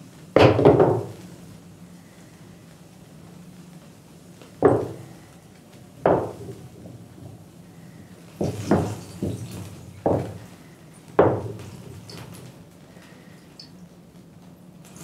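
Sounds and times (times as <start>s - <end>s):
knocks: 0.4s - 1.1s, 4.6s - 5.1s, 6.0s - 7.0s, 8.4s - 10.4s, 11.2s - 11.7s.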